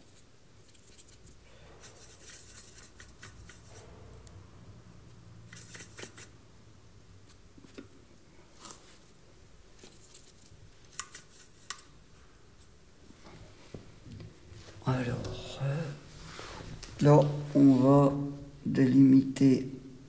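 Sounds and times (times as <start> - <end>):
paper scratching and rustling: 0.0 - 3.8, 5.5 - 6.3, 9.8 - 11.7.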